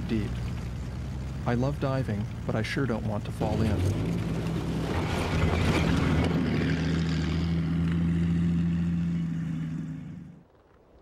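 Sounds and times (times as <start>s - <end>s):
tracked vehicle engine drone: 0.0s - 10.6s.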